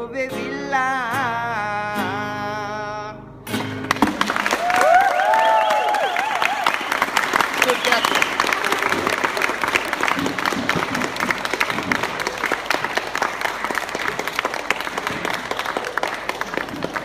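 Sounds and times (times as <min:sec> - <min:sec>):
small crowd applauding: 0:03.6 - 0:17.0.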